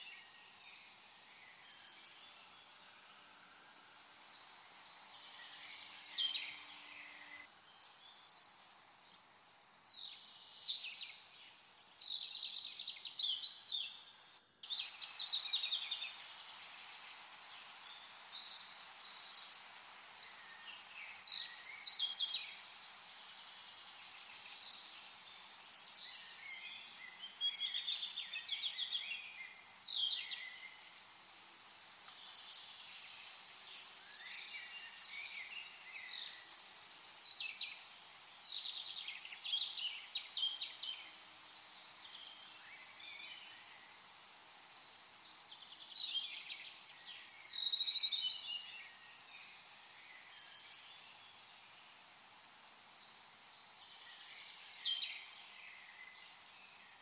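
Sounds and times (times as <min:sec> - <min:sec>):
steady hiss: 0:00.0 - 0:57.0
birds chirping: 0:03.9 - 0:57.0.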